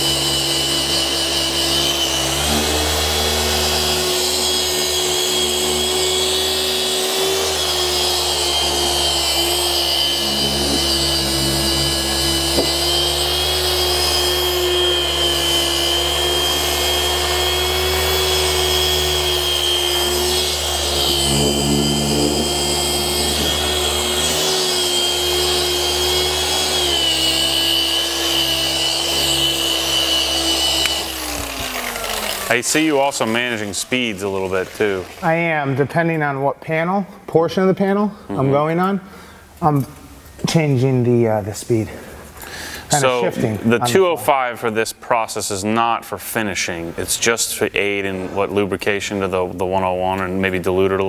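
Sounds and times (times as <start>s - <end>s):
electric polisher motor whine: 0.0s - 35.3s.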